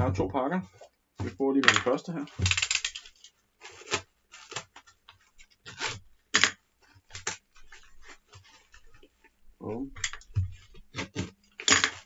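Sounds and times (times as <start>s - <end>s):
package tape tearing: 2.4s - 5.0s, 5.6s - 7.4s.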